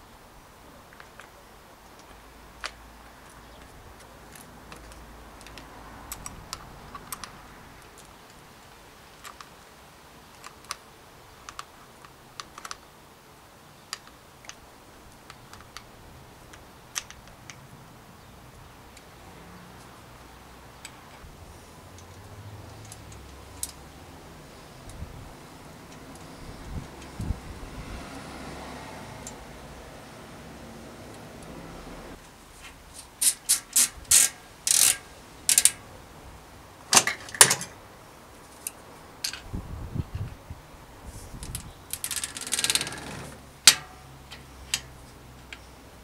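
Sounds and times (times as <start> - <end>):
small clicks and taps on bicycle saddle: 0.9 - 8.4, 10.3 - 12.9, 21.9 - 23.8, 33.0 - 35.8, 41.4 - 45.7.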